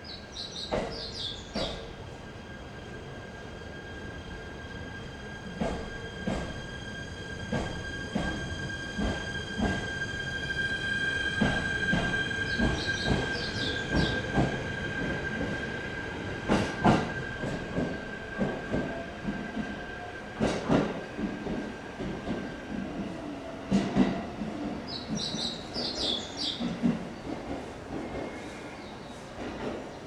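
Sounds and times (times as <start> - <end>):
train wheels knocking over rail joints: 11.4 - 14.5.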